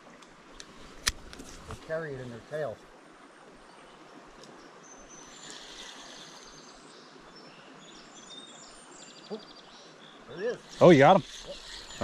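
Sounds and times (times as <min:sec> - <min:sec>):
creek rushing: 0:00.0 - 0:12.0
small birds chirping: 0:03.6 - 0:12.0.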